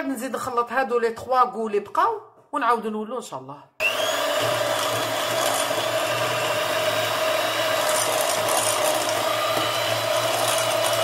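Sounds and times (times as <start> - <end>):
electric hand mixer running: 3.8 - 11.0.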